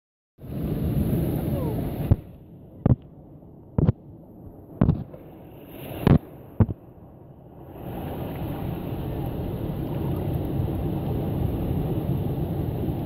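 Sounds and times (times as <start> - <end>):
sharp knocks: 4.8 - 5.1.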